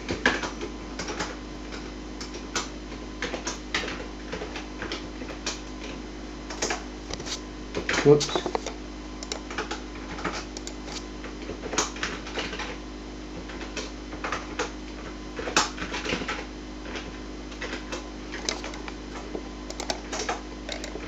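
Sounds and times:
steady low hum: 0:00.0 - 0:21.0
keyboard key clicks: 0:08.3 - 0:09.4, 0:18.4 - 0:19.0, 0:19.7 - 0:21.0.

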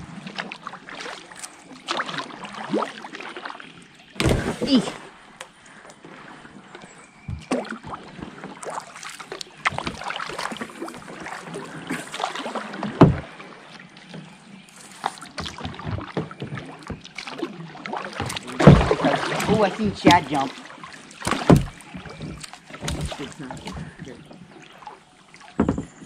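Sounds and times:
kayak paddle splashing in water: 0:00.0 - 0:26.0
loud thump: 0:04.2 - 0:04.8, 0:21.3 - 0:21.8
short knocks: 0:21.2 - 0:23.9.

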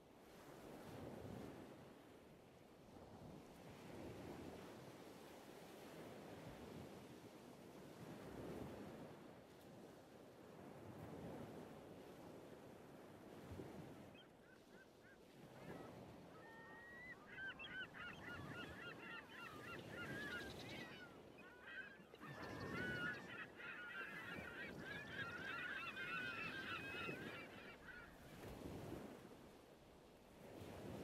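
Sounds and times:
flock of birds calling: 0:16.4 - 0:28.2.

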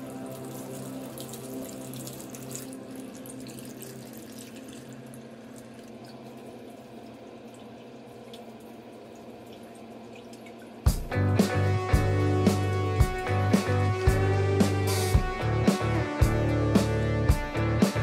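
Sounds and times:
water pouring into a pot: 0:00.0 - 0:10.9.

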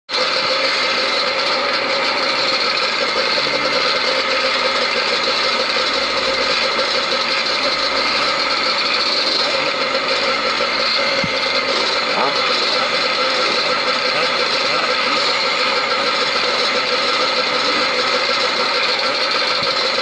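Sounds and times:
motorbike engines droning: 0:00.1 - 0:20.0.

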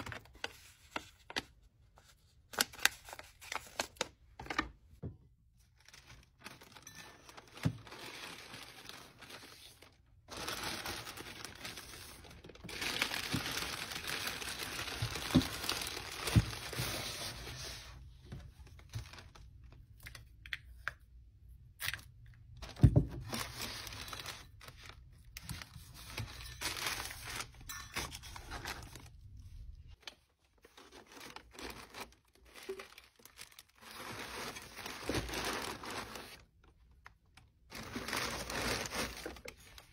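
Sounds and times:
tissue paper rustling: 0:05.8 - 0:18.1, 0:23.2 - 0:25.0, 0:25.6 - 0:29.6, 0:30.6 - 0:36.5, 0:37.7 - 0:39.9.

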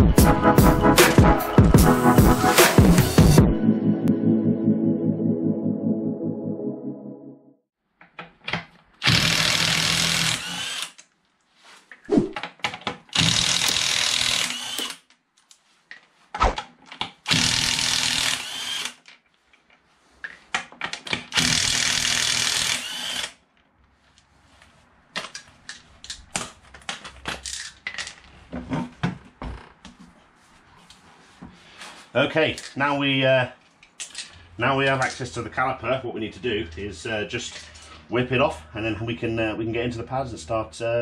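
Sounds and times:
cordless power tool whirring: 0:09.0 - 0:10.9, 0:13.1 - 0:15.0, 0:17.3 - 0:19.0, 0:21.3 - 0:23.4.

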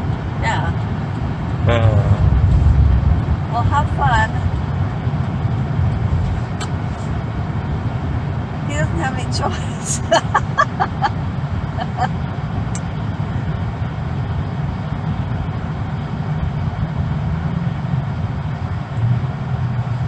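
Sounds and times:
car road and engine rumble: 0:00.0 - 0:20.0
brief voice sounds: 0:01.7 - 0:02.2.

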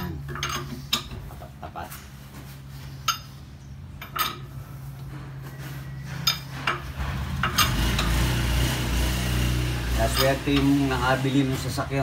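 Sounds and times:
lug wrench clinking: 0:00.2 - 0:01.2, 0:03.0 - 0:04.6, 0:06.2 - 0:08.2, 0:09.9 - 0:11.1.

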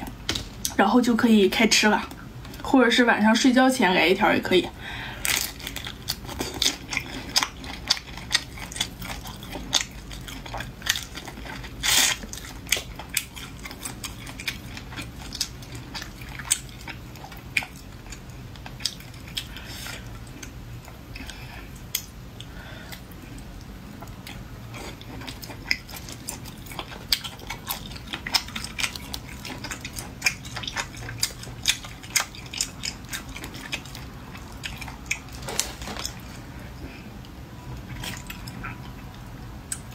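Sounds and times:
wet chewing with smacking clicks: 0:05.5 - 0:36.4.

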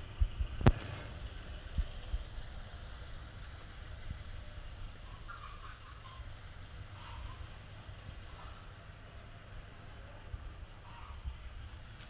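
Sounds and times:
wind rumble on microphone: 0:00.0 - 0:05.3.

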